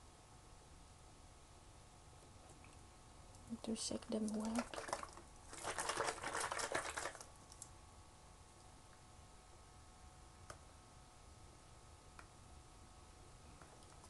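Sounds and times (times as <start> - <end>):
faint steady hum: 0.0 - 14.0
carton of liquid shaken: 4.3 - 7.3.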